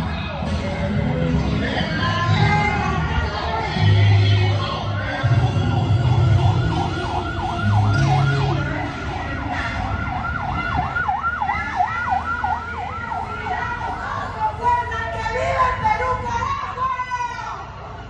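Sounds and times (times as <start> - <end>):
emergency siren yelping: 5.2 - 15.8.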